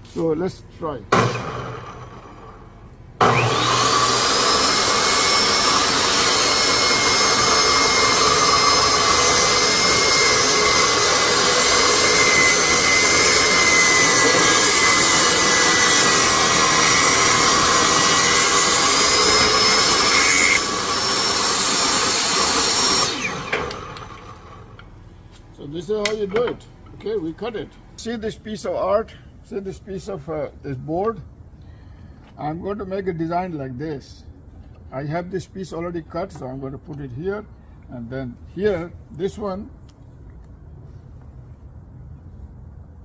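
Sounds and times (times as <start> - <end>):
saw blade cutting wood: 1.1 - 2.4, 3.2 - 24.8
table saw whining: 1.1 - 25.0.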